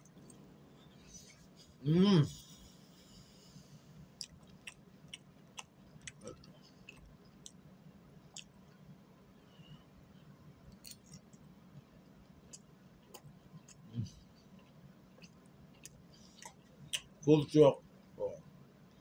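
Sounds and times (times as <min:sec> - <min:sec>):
low steady hum: 0:00.0 - 0:19.0
quiet chewing: 0:04.2 - 0:07.6, 0:08.3 - 0:08.8, 0:12.4 - 0:17.1.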